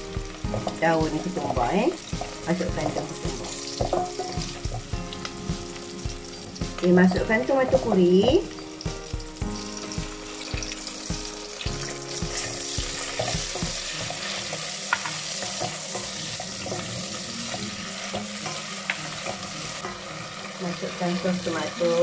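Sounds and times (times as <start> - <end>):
spices sizzling in a pot: 0.0 - 22.0
wooden spatula stirring: 0.5 - 5.4, 11.9 - 20.0.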